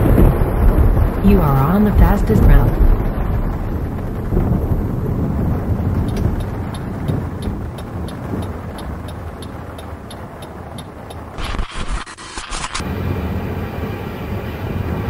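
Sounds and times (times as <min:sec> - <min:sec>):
car driving rumble: 0:00.0 - 0:11.4
faint regular ticks: 0:06.0 - 0:12.8.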